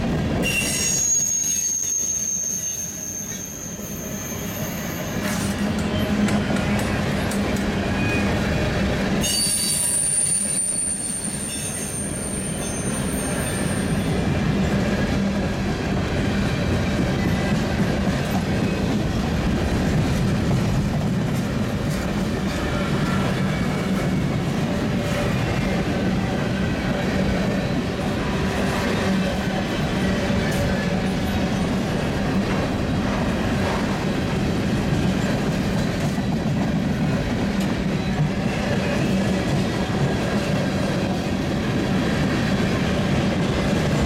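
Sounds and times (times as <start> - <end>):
train wheels rumbling on rails: 0.0 - 44.0
high-pitched wheel squeal: 0.4 - 6.2, 9.2 - 14.1.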